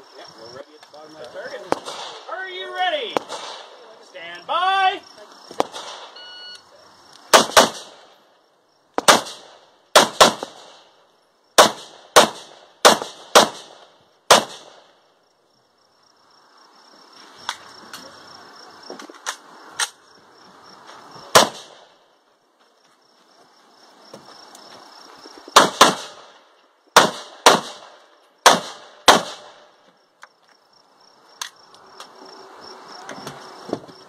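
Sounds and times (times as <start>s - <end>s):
rifle shots: 1.7s - 2.3s, 3.2s - 3.8s, 5.6s - 6.2s, 7.3s - 8.2s, 9.0s - 10.9s, 11.6s - 14.9s, 21.3s - 21.9s, 25.5s - 26.4s, 27.0s - 29.7s.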